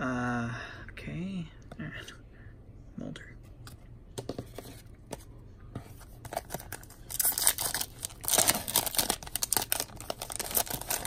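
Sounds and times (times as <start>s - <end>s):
foil wrapper tearing and crinkling: 6.6s - 11.0s.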